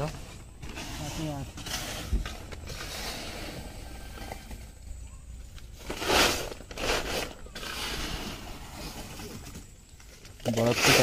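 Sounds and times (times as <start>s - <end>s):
plastic sack rustling: 5.6s - 11.0s.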